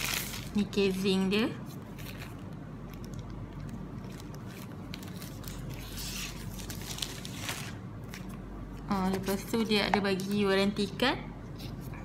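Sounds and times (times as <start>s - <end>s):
paper and plastic packaging rustling: 0.0s - 1.1s, 1.7s - 9.7s
steady low hum: 0.0s - 12.0s.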